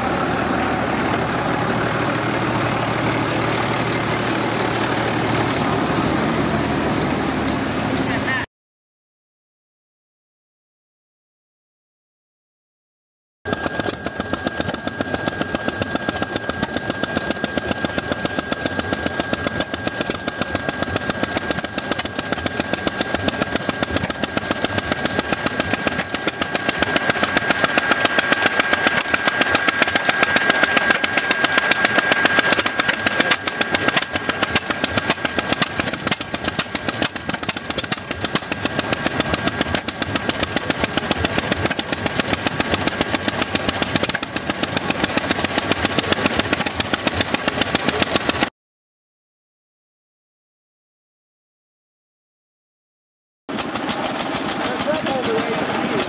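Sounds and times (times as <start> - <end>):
gas engines chugging: 0.0 - 8.4, 13.5 - 48.5, 53.5 - 56.0.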